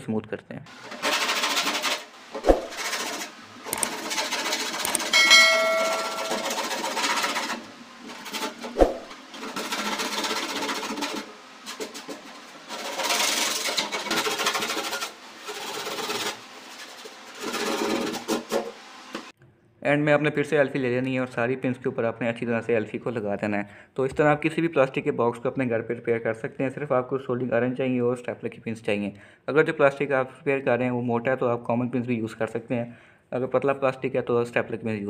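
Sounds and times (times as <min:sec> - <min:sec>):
sandpaper scratching plastic: 0:00.7 - 0:05.1, 0:06.6 - 0:19.2.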